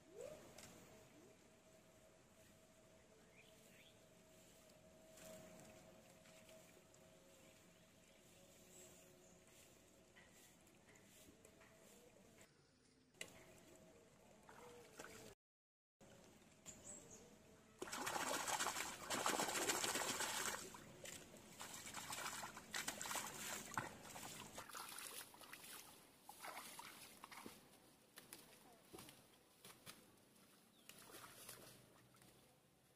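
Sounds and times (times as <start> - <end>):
hands splashing in pond water: 14.4 - 15.4, 17.8 - 30.0, 30.8 - 32.4.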